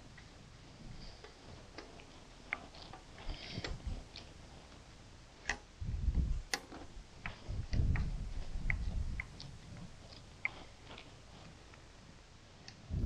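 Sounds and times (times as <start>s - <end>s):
low rumbles: 5.8s - 6.5s.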